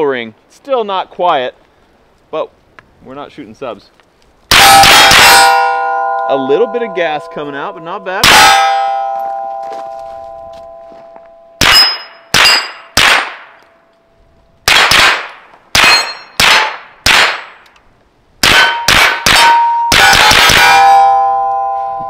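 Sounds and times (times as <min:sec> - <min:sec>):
steel targets clanging and ringing: 0:04.5 - 0:13.0, 0:15.8 - 0:16.4, 0:18.4 - 0:22.0
suppressed gunshots: 0:11.6 - 0:13.6, 0:14.6 - 0:17.6.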